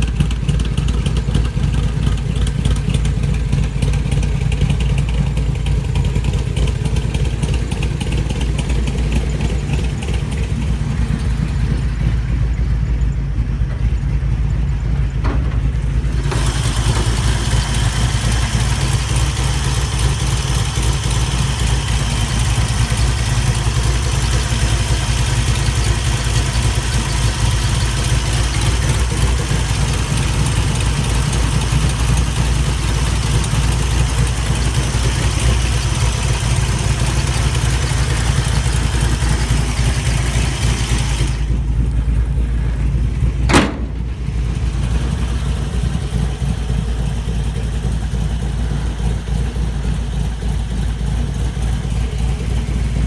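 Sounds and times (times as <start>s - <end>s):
car engine idling: 0.0s - 53.0s
sharp bang: 43.3s - 45.2s.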